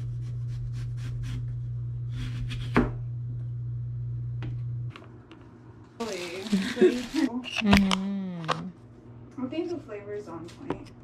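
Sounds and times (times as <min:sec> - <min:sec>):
low hum: 0:00.0 - 0:08.8.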